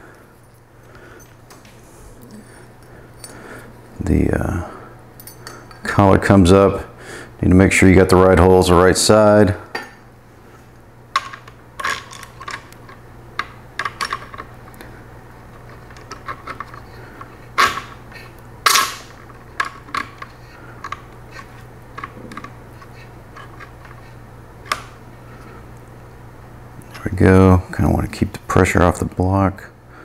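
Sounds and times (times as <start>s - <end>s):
steady low hum: 0.0s - 30.0s
metal parts clicking: 17.6s - 18.0s, 18.6s - 22.6s.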